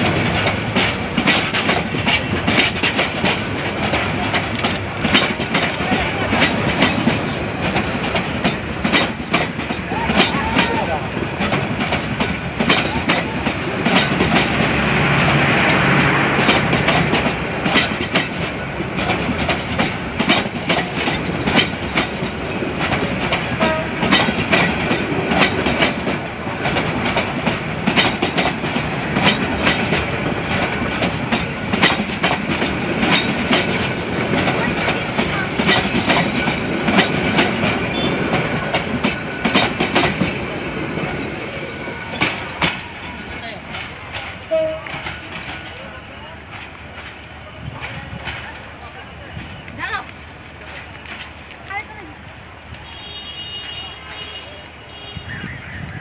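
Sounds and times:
train running gear rumble: 0.0 - 56.0
train wheels clickety-clack: 0.0 - 56.0.

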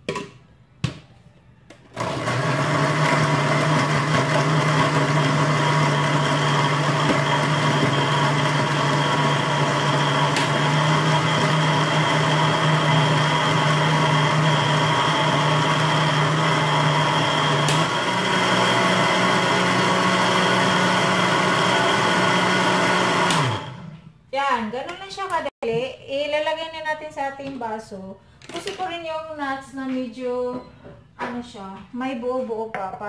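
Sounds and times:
blender motor running: 2.0 - 24.0.

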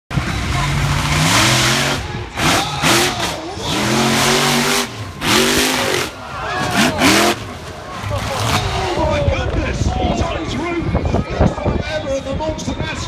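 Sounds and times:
truck engine revving: 0.1 - 9.3.

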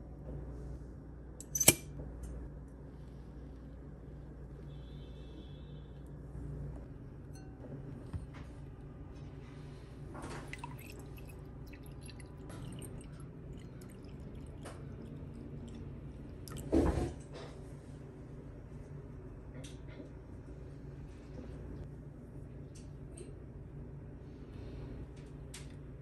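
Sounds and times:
tea pouring into a glass: 10.3 - 17.0.

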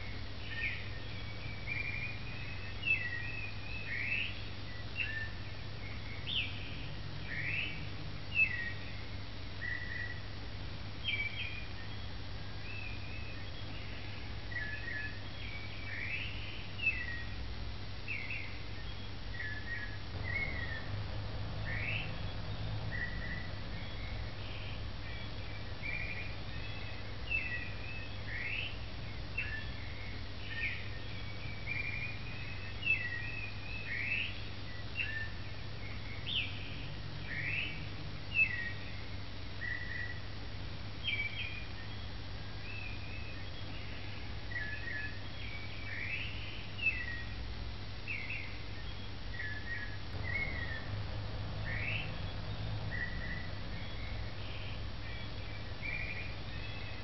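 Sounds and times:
steady low hum: 0.0 - 57.0
birds chirping and whistling: 0.1 - 10.2, 18.1 - 40.2, 48.1 - 57.0.

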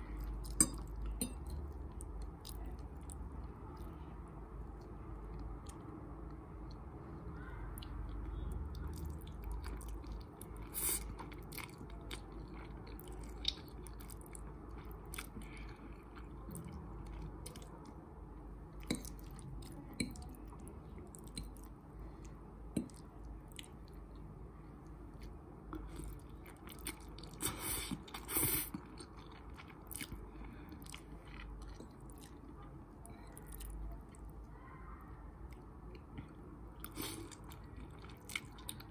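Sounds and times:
chewing and biting noodles: 25.9 - 32.5.

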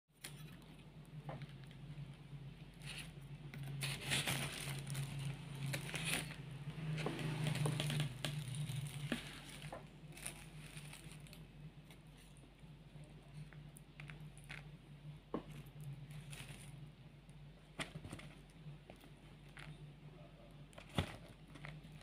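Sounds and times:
plastic lining crinkling: 2.8 - 12.4, 15.6 - 16.9.

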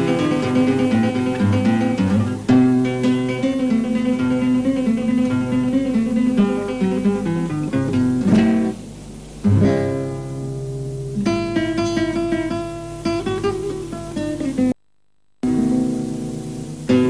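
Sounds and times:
strummed string instrument music: 0.0 - 8.8.

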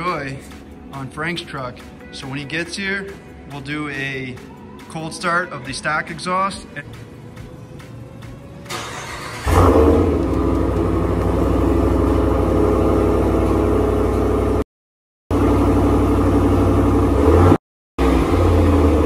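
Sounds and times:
truck engine starting and idling: 7.0 - 14.6, 15.3 - 19.0.

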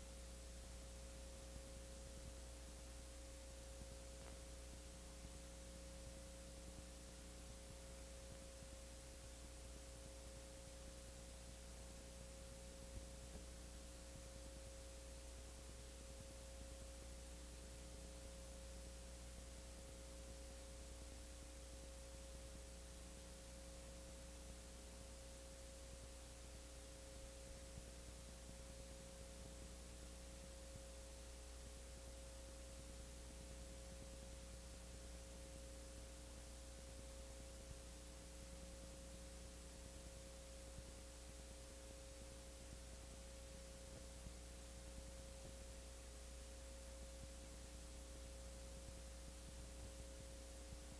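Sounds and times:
electrical hum: 0.0 - 50.9
tape hiss: 0.0 - 50.9.

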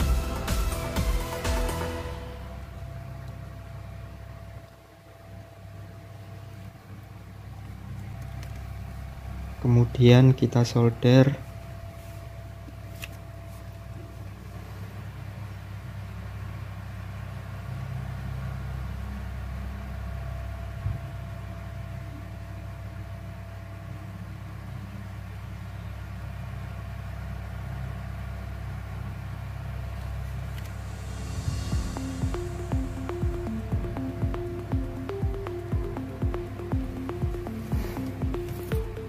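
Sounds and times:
low hum: 0.0 - 10.4, 28.8 - 39.0.

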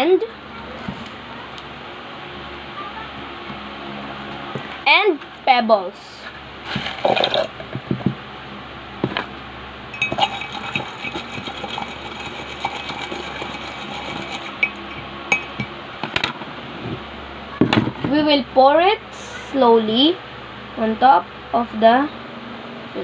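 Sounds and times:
stick stirring against glass: 10.0 - 15.7.

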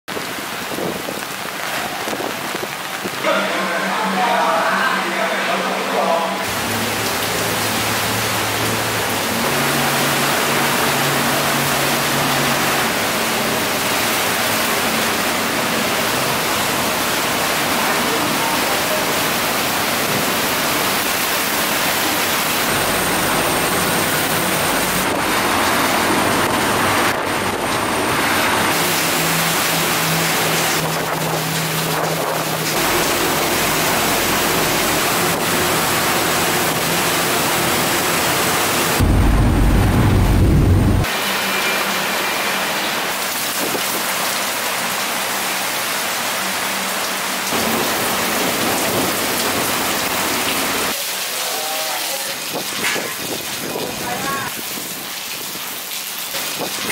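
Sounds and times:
torrential rain hissing on water: 0.1 - 56.9
loud low rumble: 38.9 - 41.1.

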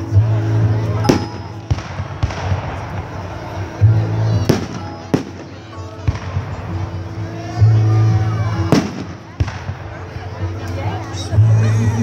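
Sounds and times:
christmas music: 0.0 - 12.0
fireworks bangs: 1.0 - 7.0, 8.6 - 10.3.

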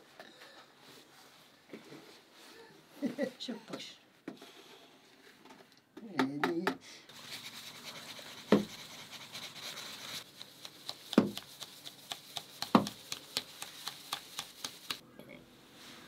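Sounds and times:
flour rustling through a sieve: 7.1 - 15.0.

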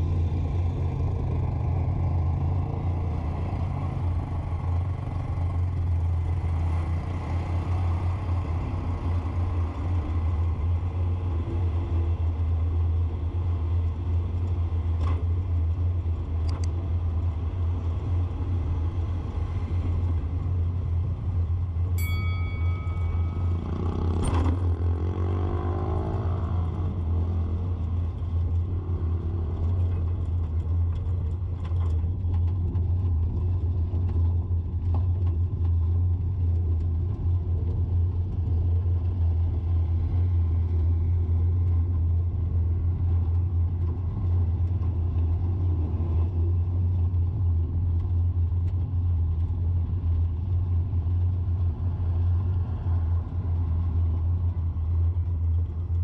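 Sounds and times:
engine rumble: 0.0 - 56.0
engine revving up: 23.3 - 27.8.

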